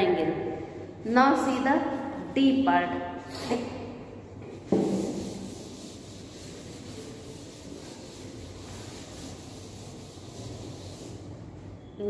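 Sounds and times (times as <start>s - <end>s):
duster wiping a chalkboard: 4.4s - 11.7s.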